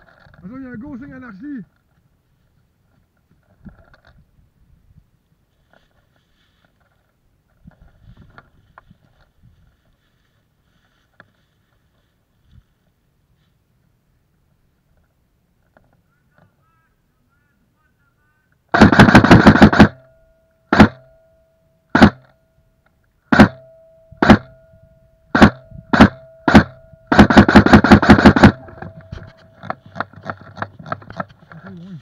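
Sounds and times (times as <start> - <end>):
airsoft gun firing: 18.7 - 20.1, 20.7 - 21.1, 21.9 - 22.3, 23.3 - 24.6, 25.3 - 29.4.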